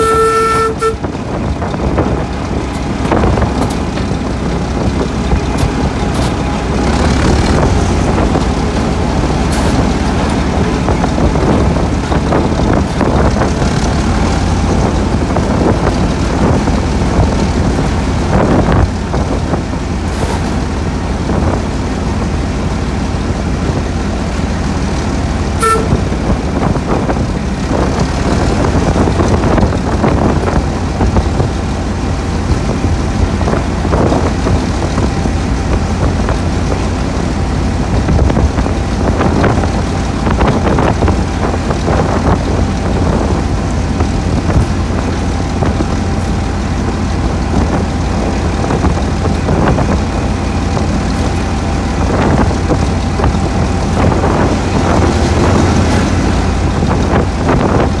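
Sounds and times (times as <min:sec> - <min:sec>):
high horn toot: 0:00.0 - 0:01.3, 0:25.6 - 0:26.2
diesel locomotive engine running: 0:00.0 - 0:58.0.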